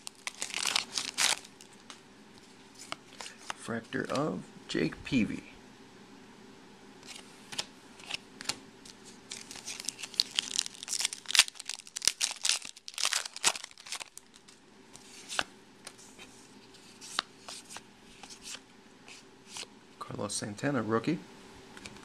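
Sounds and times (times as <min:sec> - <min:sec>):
foil wrapper tearing and crinkling: 0:00.0 - 0:01.8, 0:09.3 - 0:14.6
cards being handled: 0:00.0 - 0:04.3, 0:07.0 - 0:19.7.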